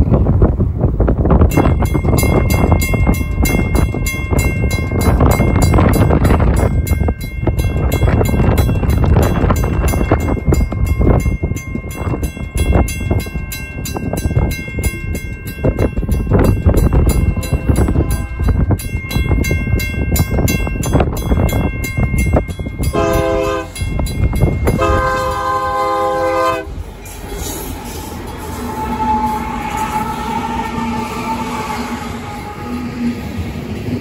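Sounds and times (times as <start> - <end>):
locomotives passing: 0.0 - 34.0
mechanical crossing bell ringing: 1.5 - 26.1
locomotive horn blasts: 17.1 - 18.6, 22.9 - 23.9, 24.6 - 26.8, 28.5 - 33.2.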